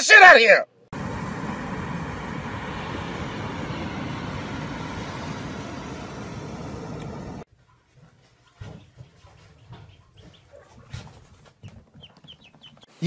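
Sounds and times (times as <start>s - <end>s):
rushing beach ambience: 0.9s - 7.5s.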